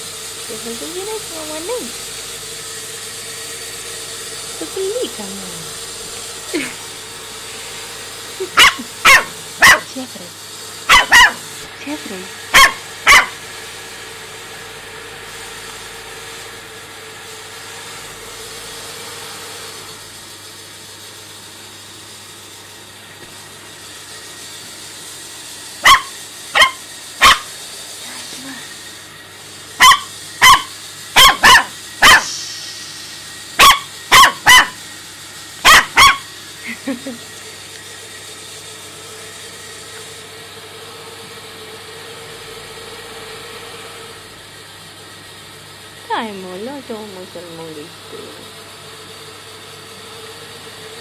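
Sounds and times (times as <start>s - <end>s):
puppy barking: 8.4s - 10.0s, 10.8s - 11.5s, 12.5s - 13.4s, 25.8s - 27.5s, 29.8s - 32.4s, 33.6s - 34.8s, 35.6s - 36.3s.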